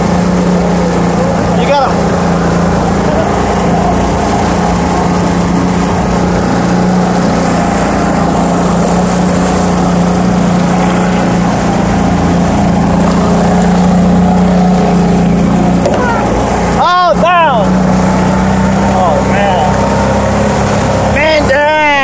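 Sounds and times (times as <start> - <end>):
outboard motor humming: 0.0 - 22.0
water rushing past hull: 0.0 - 22.0.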